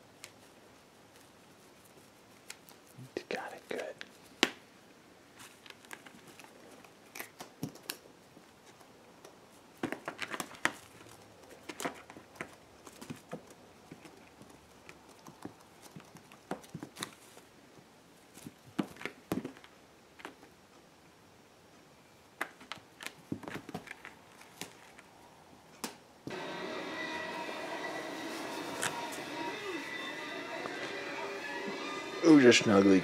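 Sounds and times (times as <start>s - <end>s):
cat claws scratching and tapping: 5.5s - 17.3s.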